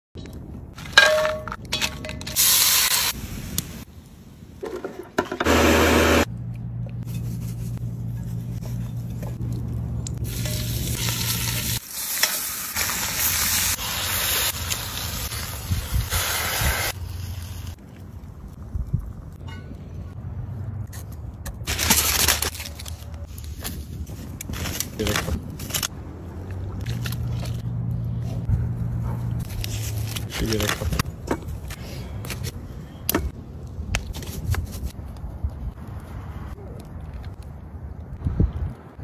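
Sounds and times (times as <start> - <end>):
meat sizzling in a pot: 10.3 - 17.7.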